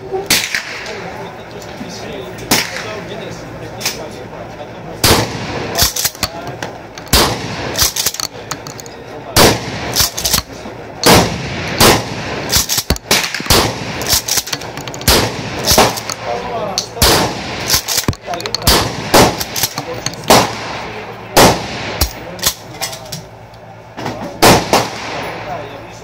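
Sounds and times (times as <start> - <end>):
shotgun gunshots: 0.3 - 0.9, 5.0 - 8.8, 9.4 - 16.4, 17.0 - 22.2, 24.4 - 25.6.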